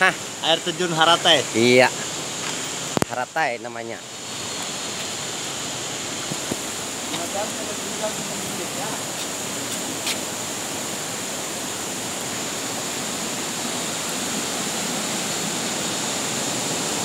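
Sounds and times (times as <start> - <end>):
stream water rushing: 0.0 - 17.0.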